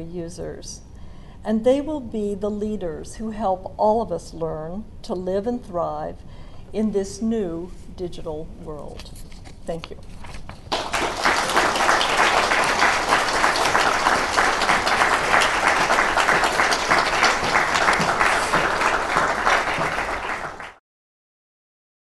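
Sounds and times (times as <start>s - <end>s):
audience applauding: 10.7s - 20.8s.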